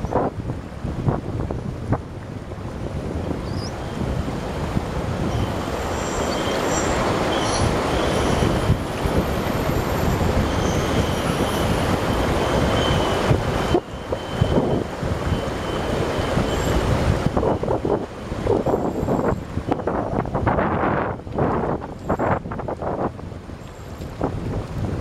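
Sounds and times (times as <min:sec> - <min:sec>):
river water rushing: 0:00.0 - 0:25.0
wind buffeting microphone: 0:00.0 - 0:25.0
faint high-pitched squeals: 0:05.2 - 0:17.6.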